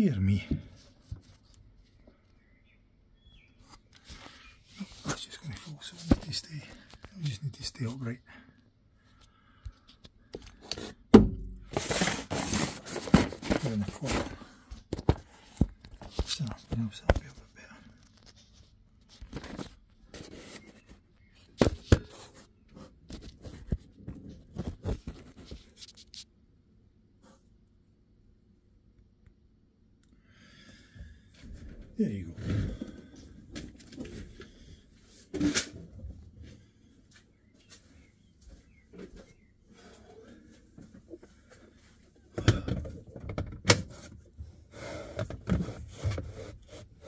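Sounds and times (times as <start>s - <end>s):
cardboard tapping and scraping: 10.6s - 17.3s.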